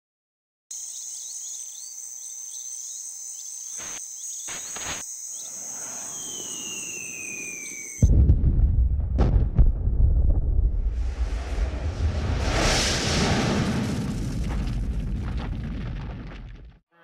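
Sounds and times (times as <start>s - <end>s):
insects buzzing: 0.7s - 8.1s
long falling whistle: 5.4s - 8.1s
loud explosion blast: 8.0s - 16.6s.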